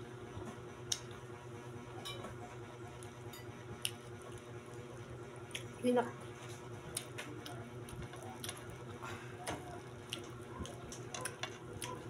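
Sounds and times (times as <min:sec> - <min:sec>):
steady low hum: 0:00.0 - 0:12.0
mouth sounds of eating: 0:06.9 - 0:12.0.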